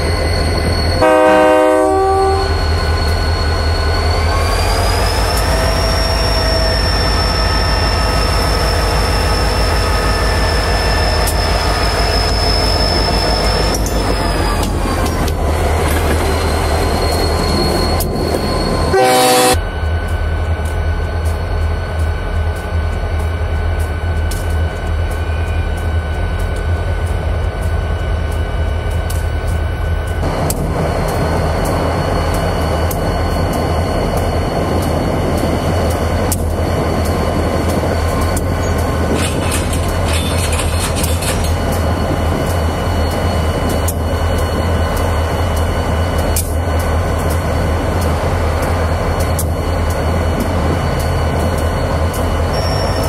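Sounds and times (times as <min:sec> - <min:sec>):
diesel locomotive rumbling past: 0:00.0 - 0:53.0
locomotive horn blast: 0:01.0 - 0:02.6, 0:18.9 - 0:19.6.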